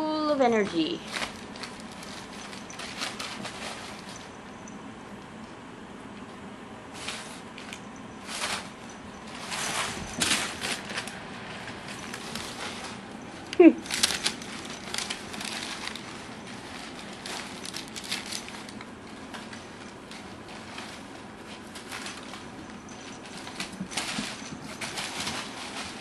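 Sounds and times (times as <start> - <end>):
packing paper rustling and crinkling: 0.7 - 4.4, 7.0 - 26.0.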